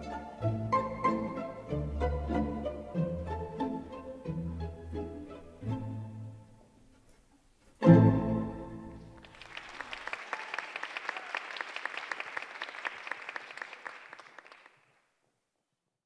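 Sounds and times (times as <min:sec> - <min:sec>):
audience applause: 0:09.1 - 0:15.0.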